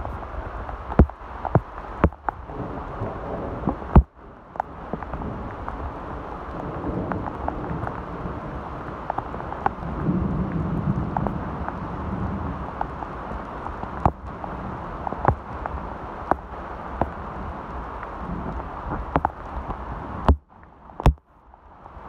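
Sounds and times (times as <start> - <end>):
steady rain hiss: 0.0 - 22.0
raindrop taps: 0.6 - 2.4, 3.6 - 5.9, 6.5 - 8.1, 8.8 - 11.8, 12.7 - 14.4, 15.0 - 21.3.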